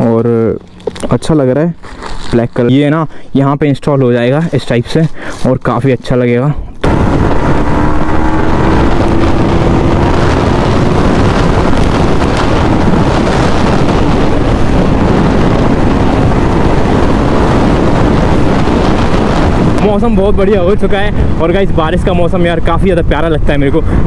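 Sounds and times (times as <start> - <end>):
wind rush on microphone: 6.6 - 24.0
motorcycle engine drone: 6.8 - 24.0.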